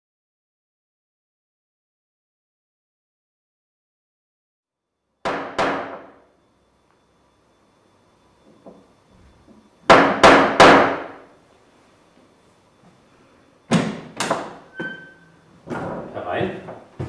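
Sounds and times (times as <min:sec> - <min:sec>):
knocks on a heavy wooden door: 0:05.3 - 0:06.1
brief high tone: 0:14.7 - 0:15.4.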